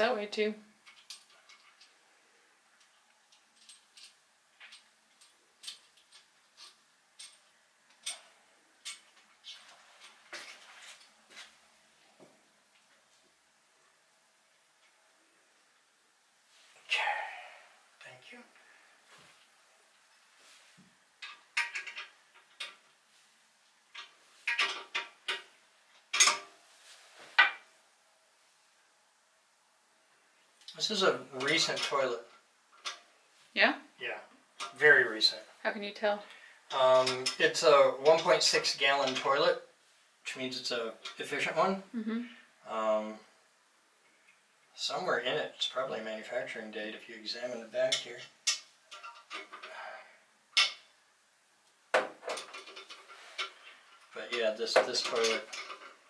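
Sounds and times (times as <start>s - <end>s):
parts clattering in toilet tank: 24.0s - 25.5s, 52.0s - 56.0s.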